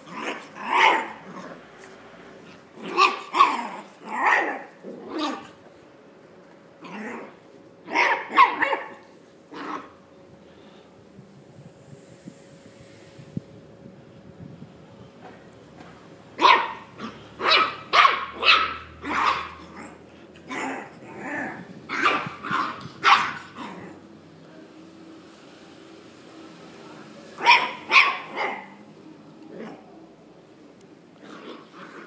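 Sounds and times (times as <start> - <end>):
puppies barking: 0.0 - 1.5, 2.8 - 5.6, 7.8 - 10.0, 16.4 - 24.0, 27.4 - 28.8.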